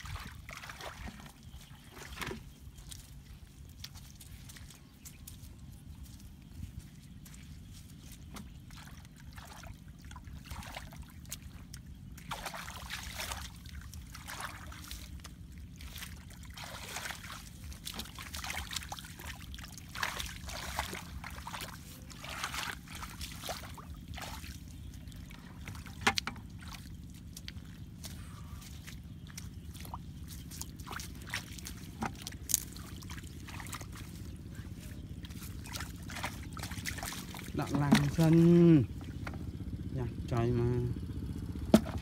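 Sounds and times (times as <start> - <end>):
muddy water sloshing: 0.0 - 42.0
steady low rumble: 0.0 - 42.0.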